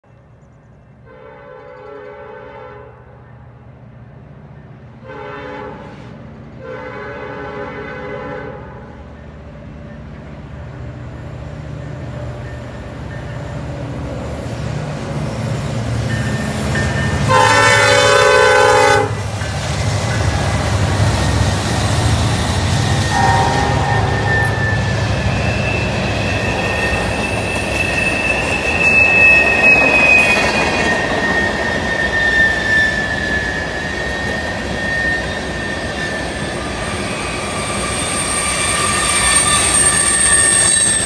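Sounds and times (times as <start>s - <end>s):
diesel locomotive horn blasts: 1.0s - 3.4s, 5.0s - 9.1s, 17.1s - 19.3s, 22.7s - 27.2s
diesel locomotive rumble: 2.9s - 40.7s
train wheels on rails: 8.6s - 41.0s.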